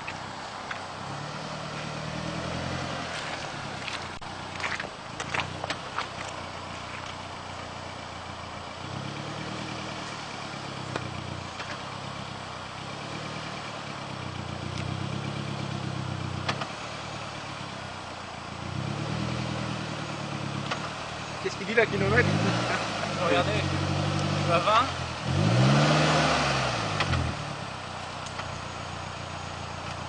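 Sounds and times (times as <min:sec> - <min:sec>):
car engine revving under load: 0:00.0 - 0:30.0.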